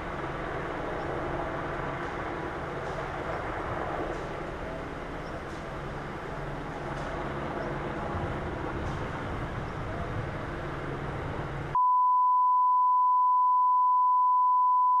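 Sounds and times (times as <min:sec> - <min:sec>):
steady test tone beep: 0:11.8 - 0:15.0.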